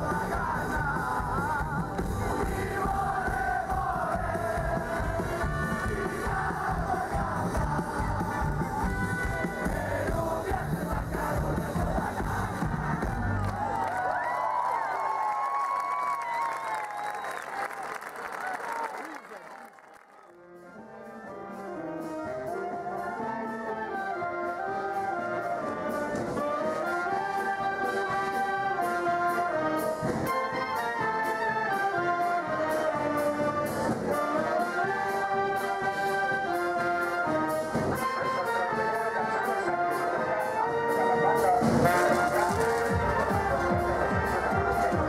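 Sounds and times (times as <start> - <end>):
wind band playing a tune: 1.9 - 10.6, 20.6 - 45.0.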